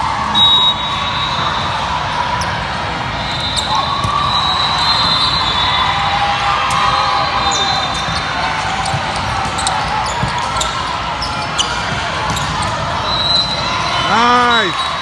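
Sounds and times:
murmur of spectators: 0:00.0 - 0:15.0
sneakers squeaking on gym floor: 0:03.2 - 0:05.8, 0:07.3 - 0:13.7.

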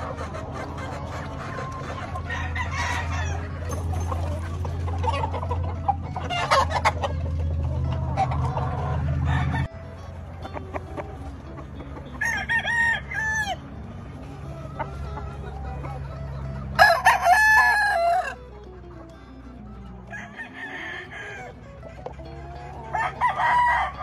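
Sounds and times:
rooster crowing: 0:02.2 - 0:03.5, 0:08.9 - 0:09.8, 0:12.2 - 0:13.6, 0:16.8 - 0:18.4, 0:20.1 - 0:21.6, 0:22.8 - 0:24.0.

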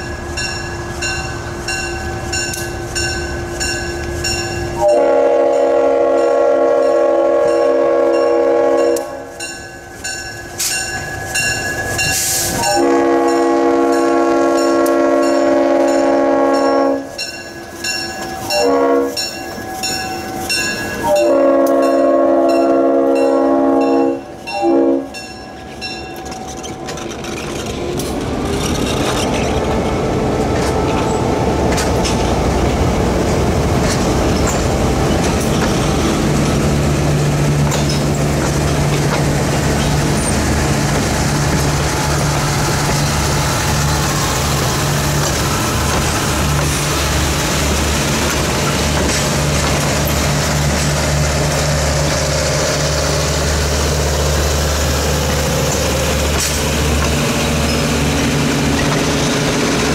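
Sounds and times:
train wheels rumbling on rails: 0:00.0 - 0:59.9
locomotive air horn blasts: 0:04.8 - 0:09.3, 0:12.6 - 0:17.2, 0:18.5 - 0:19.3, 0:21.0 - 0:25.3
wheels clacking over rail joints: 0:25.2 - 0:59.9.

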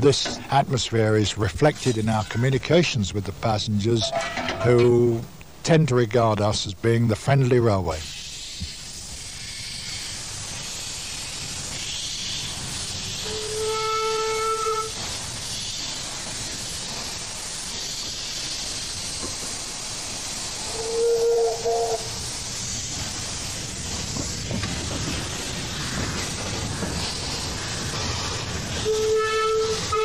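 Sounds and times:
steam locomotive hissing: 0:00.0 - 0:30.0
steam whistle: 0:13.2 - 0:15.0, 0:20.6 - 0:22.2, 0:28.8 - 0:30.0.

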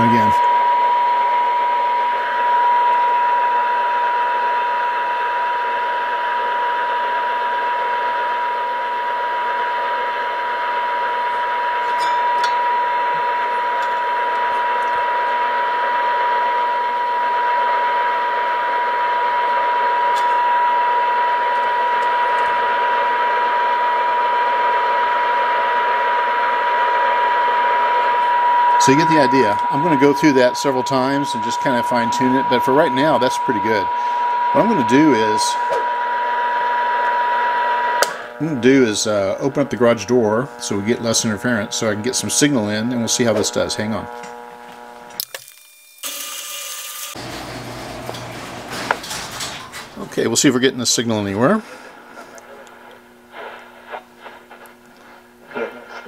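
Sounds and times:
radio test tone: 0:00.0 - 0:45.4, 0:49.7 - 0:56.0
static hiss: 0:50.0 - 0:56.0.

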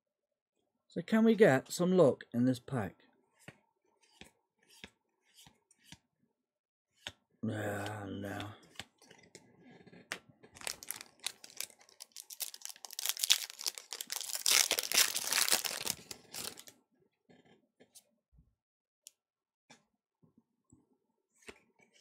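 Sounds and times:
foil wrapper crinkling and tearing: 0:10.6 - 0:16.7.

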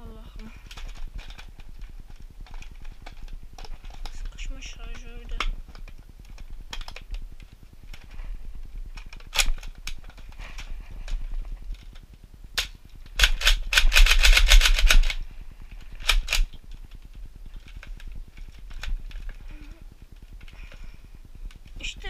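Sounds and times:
plastic toy blaster clicking: 0:02.4 - 0:07.2, 0:09.0 - 0:10.7, 0:12.6 - 0:15.2, 0:16.0 - 0:16.6.

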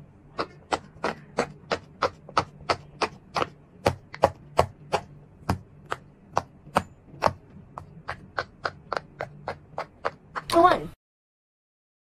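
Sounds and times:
fidget toy bubbles popping: 0:07.2 - 0:10.5.

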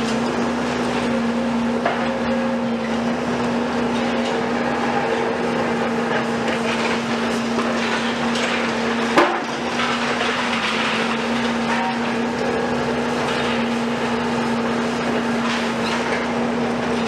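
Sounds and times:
concrete crunching and clattering: 0:00.0 - 0:17.0
excavator engine hum: 0:00.0 - 0:17.0
rubble falling: 0:06.6 - 0:13.9.

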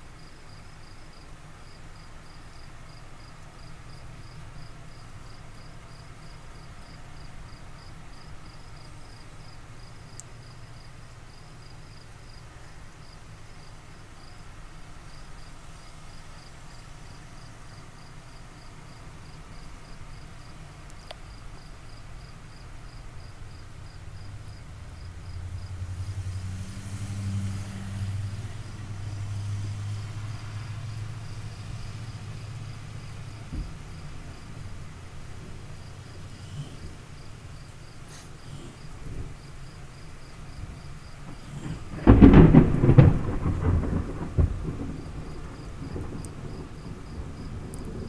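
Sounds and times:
insects chirping: 0:00.2 - 0:14.4, 0:15.0 - 0:48.0
low background hum: 0:30.5 - 0:44.9.

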